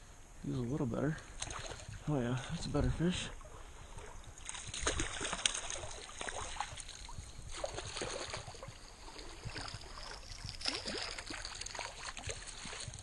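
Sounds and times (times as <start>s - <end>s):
landing net dipped in water: 1.2s - 2.6s, 3.4s - 13.0s
fish splashing in water: 1.4s - 2.0s, 3.8s - 13.0s.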